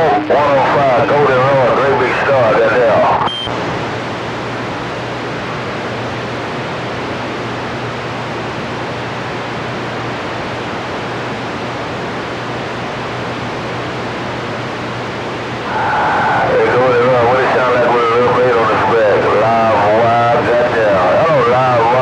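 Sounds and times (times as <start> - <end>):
radio static hiss: 0.0 - 22.0
short beep: 3.3 - 3.6.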